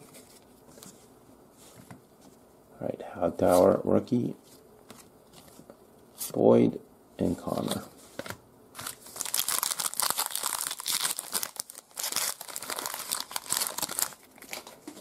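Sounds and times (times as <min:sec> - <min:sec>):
plastic foil wrapper crinkling and tearing: 0:08.8 - 0:15.0.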